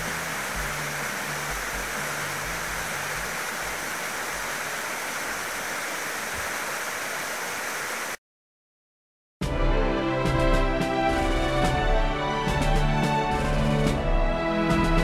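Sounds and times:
water rushing over rocks: 0.0s - 8.2s.

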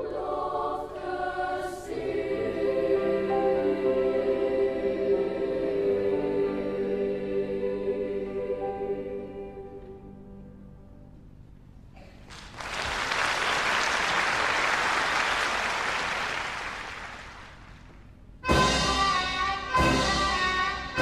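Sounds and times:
children's choir holding chord: 0.0s - 11.2s, 18.4s - 21.0s
audience applause: 12.3s - 17.9s.

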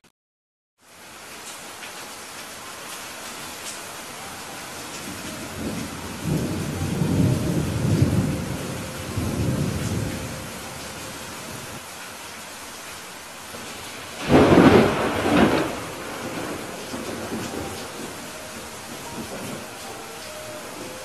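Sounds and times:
heavy rain: 0.8s - 21.0s
rolling thunder rumble: 4.7s - 11.8s, 13.5s - 21.0s
sharp thunderclap: 13.6s - 18.3s.

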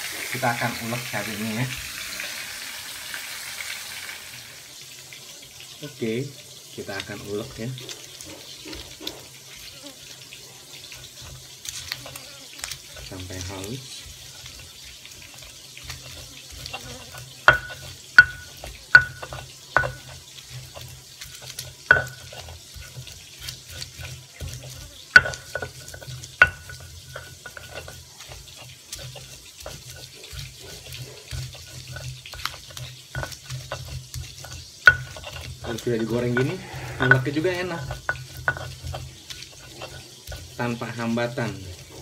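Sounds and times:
pestle grinding in stone mortar: 0.1s - 2.3s, 6.7s - 42.0s
stone on stone knocks: 17.4s - 20.2s, 36.3s - 37.4s.

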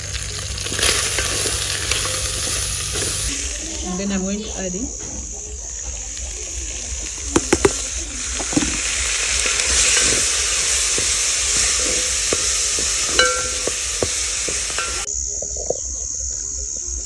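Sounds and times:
food sizzling in oil: 0.0s - 4.8s, 5.6s - 15.1s
tomatoes tipped into hot pan: 7.4s - 15.1s
wooden spoon stirring: 7.4s - 15.1s.

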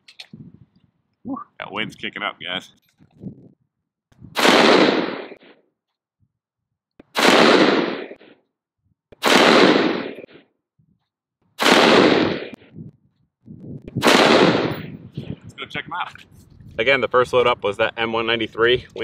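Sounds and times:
rifle gunshots: 4.4s - 5.6s, 7.1s - 8.2s, 9.2s - 10.4s, 11.6s - 12.6s, 14.0s - 15.0s.

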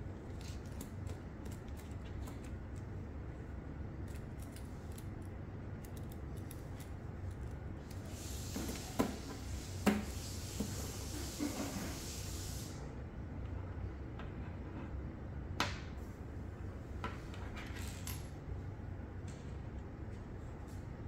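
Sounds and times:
steady low hum: 0.0s - 21.0s
light clicks and taps of parts: 4.0s - 8.0s.

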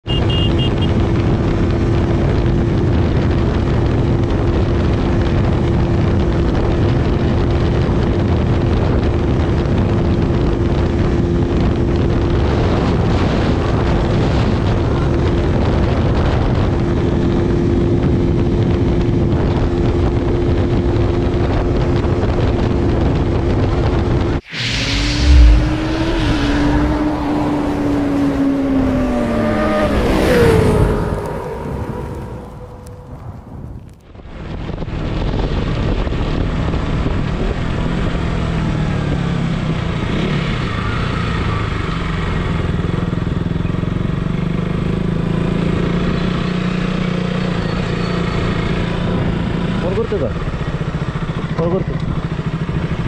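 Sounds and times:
motorcycle engine cruising: 0.0s - 53.0s
motorcycle revving: 0.0s - 53.0s
wind rush: 20.2s - 37.6s
loud low thump: 24.4s - 28.4s.

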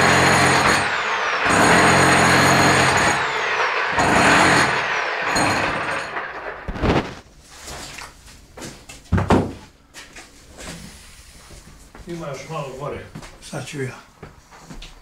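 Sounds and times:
hammer drill boring into stone: 0.0s - 6.8s.

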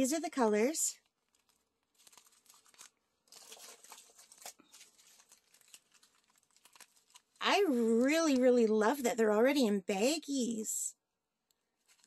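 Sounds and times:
plastic bags crinkling: 1.0s - 9.0s, 11.8s - 12.0s.

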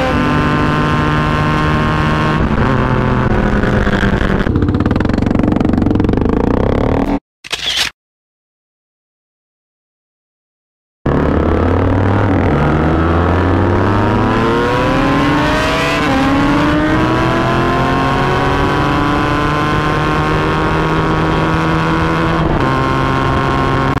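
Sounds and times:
wind noise: 0.0s - 5.5s
motorcycle engine accelerating: 0.0s - 7.2s, 11.1s - 24.0s.

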